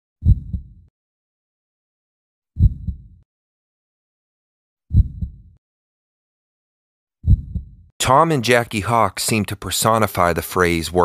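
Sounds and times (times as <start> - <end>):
heartbeat thumps: 0.2 - 0.8, 2.6 - 3.2, 4.9 - 5.5, 7.2 - 7.9.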